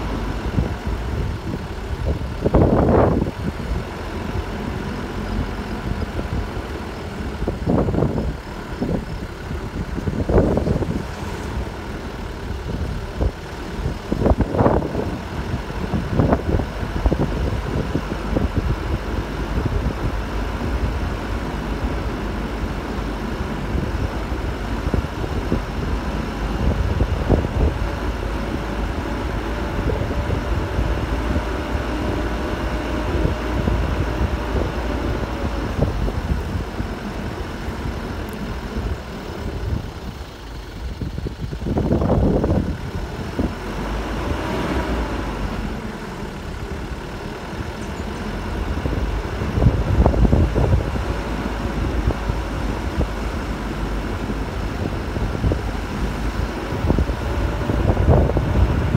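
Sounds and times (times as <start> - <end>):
vehicle engine and tyre rumble: 0.0 - 58.9.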